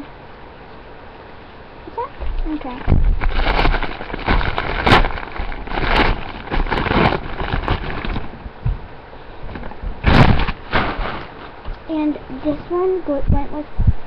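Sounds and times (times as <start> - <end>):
wrapping paper crinkling: 2.7 - 8.3, 10.1 - 11.6.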